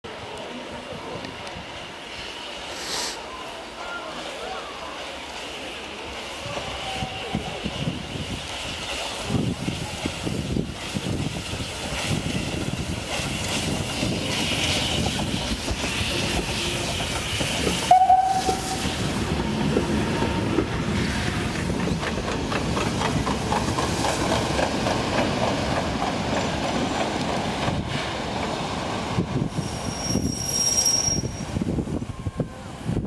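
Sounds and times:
steam hissing: 0:01.6 - 0:33.0
train wheels clattering on rails: 0:08.2 - 0:31.3
steam whistle blast: 0:17.8 - 0:19.0.

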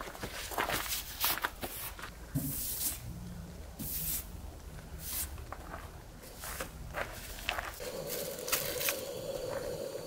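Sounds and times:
footsteps crunching on gravel: 0:00.0 - 0:02.1, 0:05.3 - 0:09.8.

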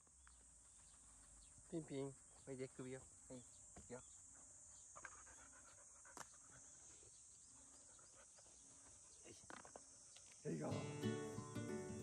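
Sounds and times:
high insect drone: 0:01.8 - 0:12.0
puppy panting: 0:04.8 - 0:07.1.

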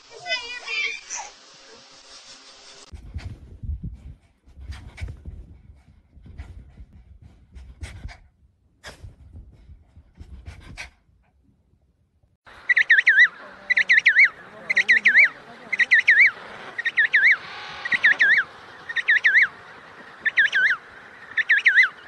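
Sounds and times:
dog panting and sniffing: 0:02.9 - 0:11.5
dog high chirps: 0:12.7 - 0:19.5, 0:21.4 - 0:22.0.

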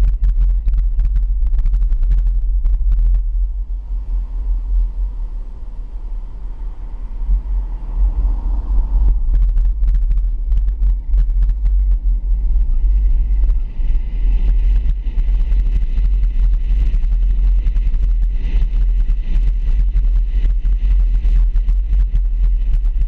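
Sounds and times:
wind buffeting and road noise: 0:00.0 - 0:23.0.

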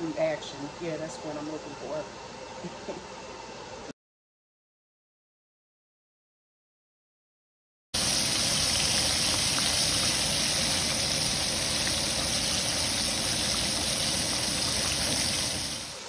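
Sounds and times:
chicken frying in hot oil: 0:08.0 - 0:16.0.

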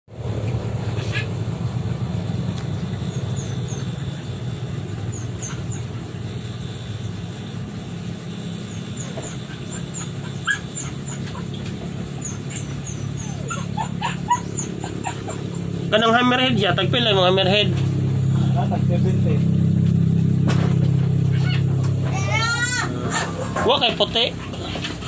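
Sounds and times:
low hum: 0:00.1 - 0:25.0
puppy whimpering and yipping: 0:05.1 - 0:06.0, 0:08.7 - 0:15.9, 0:21.3 - 0:23.6.

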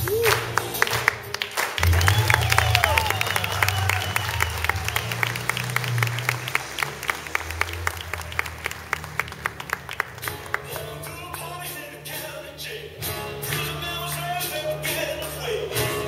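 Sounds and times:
audience clapping along: 0:00.0 - 0:11.7.

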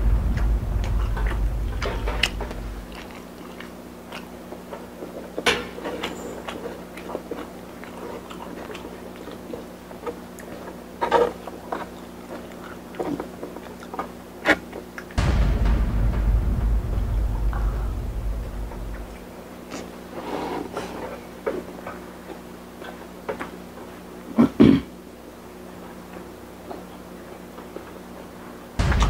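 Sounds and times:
deep low sound: 0:00.0 - 0:03.2, 0:15.2 - 0:19.5, 0:28.8 - 0:29.0
faint hum: 0:00.0 - 0:29.0
crisp dumplings crunching: 0:02.8 - 0:15.2.

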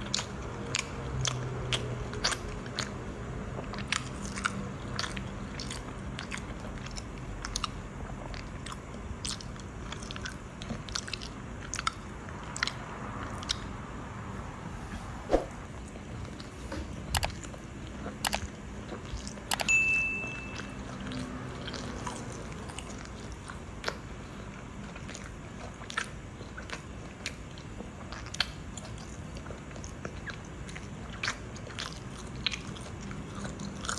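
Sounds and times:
chewing and biting: 0:00.0 - 0:13.8, 0:15.8 - 0:33.9
wet mouth clicks and smacks: 0:08.4 - 0:13.7, 0:18.1 - 0:19.7
high steady beep: 0:19.6 - 0:20.8.

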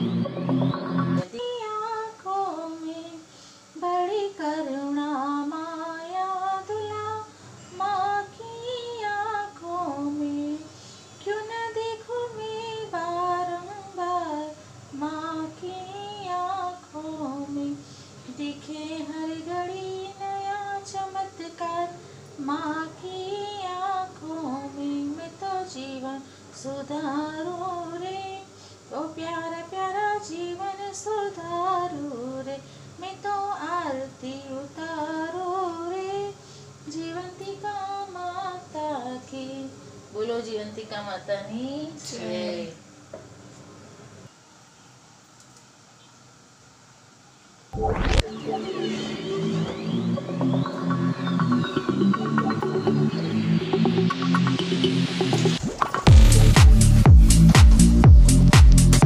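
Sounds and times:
woman singing a devotional chant: 0:01.2 - 0:42.8.

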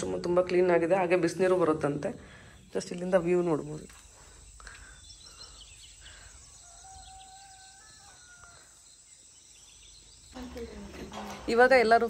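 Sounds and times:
distant rooster crowing: 0:06.3 - 0:09.0.

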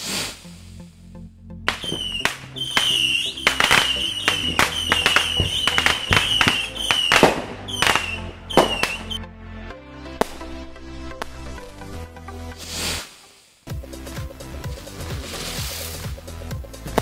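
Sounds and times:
background music: 0:00.0 - 0:17.0
fireworks bangs: 0:01.7 - 0:09.2
fireworks high whistle: 0:01.7 - 0:09.2.

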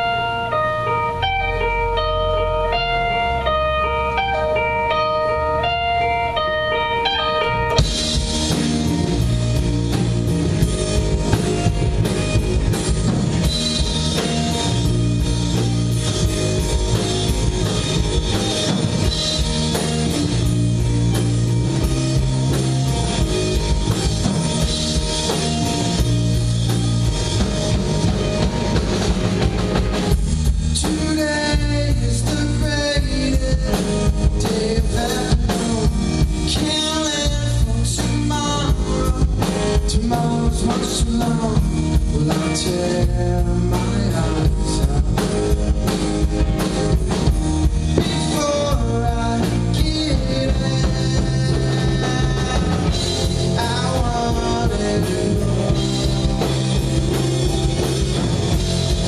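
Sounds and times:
live rock band playing: 0:00.0 - 0:59.0
single electric guitar line: 0:00.0 - 0:59.0.

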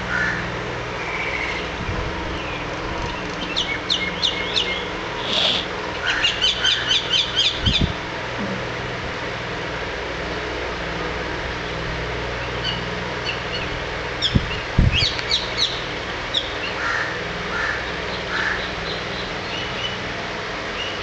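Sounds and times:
steady low hum: 0:00.0 - 0:21.0
crows cawing: 0:00.1 - 0:00.6, 0:05.2 - 0:07.1, 0:16.7 - 0:18.8
birds chirping: 0:01.0 - 0:08.7.

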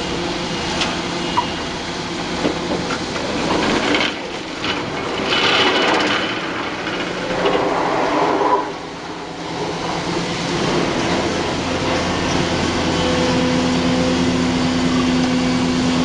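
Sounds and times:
excavator running: 0:00.0 - 0:16.0.

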